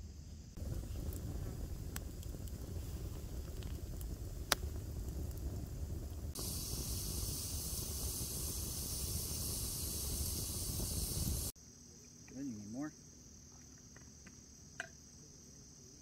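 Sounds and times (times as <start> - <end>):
fire crackle: 0.0 - 11.6
steady high hiss: 0.0 - 16.0
campfire rumble: 0.1 - 11.6.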